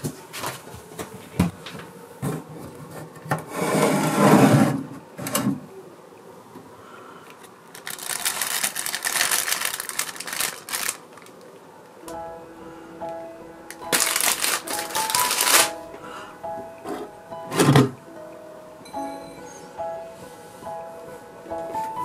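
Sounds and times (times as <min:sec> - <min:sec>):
wooden cupboard door scraping: 0:02.9 - 0:05.6
plastic wrapping crinkling: 0:07.6 - 0:11.6, 0:13.7 - 0:15.8.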